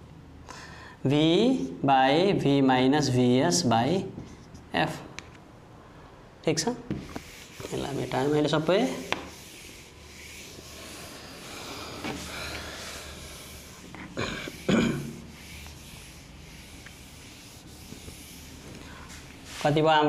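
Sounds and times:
duster rubbing on whiteboard: 0:06.9 - 0:19.8.

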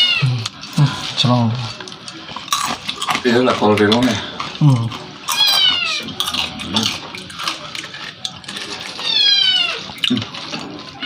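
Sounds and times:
cat meowing: 0:00.0 - 0:00.4, 0:05.3 - 0:06.1, 0:08.9 - 0:10.0.

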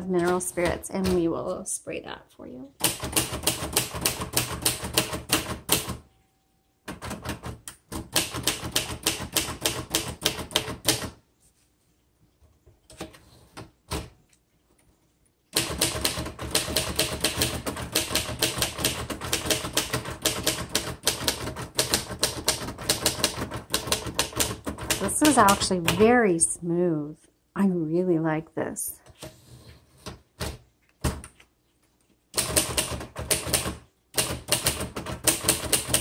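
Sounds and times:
manual typewriter typing: 0:00.0 - 0:01.4, 0:02.8 - 0:06.1, 0:06.8 - 0:11.2, 0:15.5 - 0:26.2, 0:32.3 - 0:36.0
typewriter carriage return: 0:15.6 - 0:26.2, 0:32.4 - 0:36.0.

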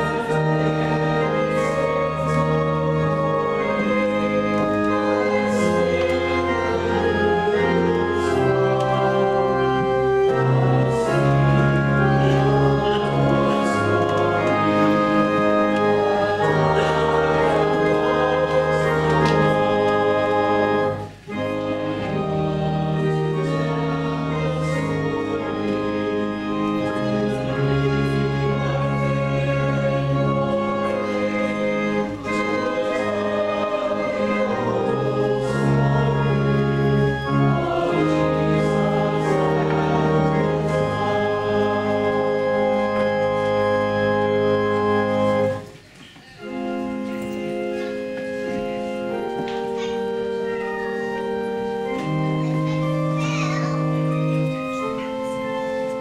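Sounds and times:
organ playing a hymn: 0:00.0 - 0:56.0.

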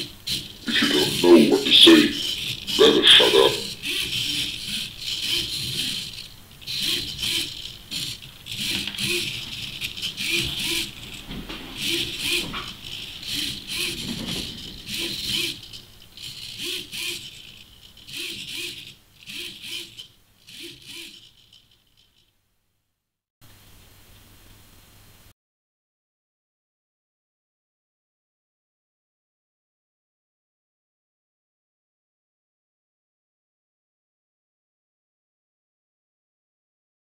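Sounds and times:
servos whirring and buzzing: 0:00.0 - 0:22.3.

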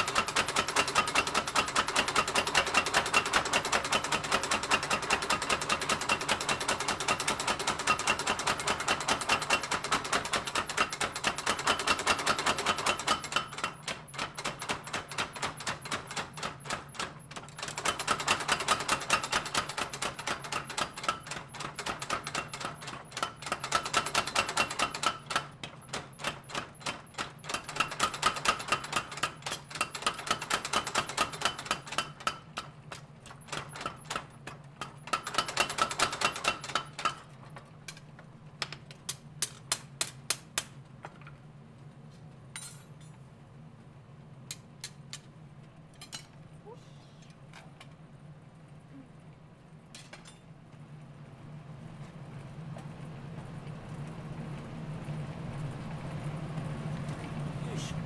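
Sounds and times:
power hammer pounding steel: 0:00.0 - 0:37.3.

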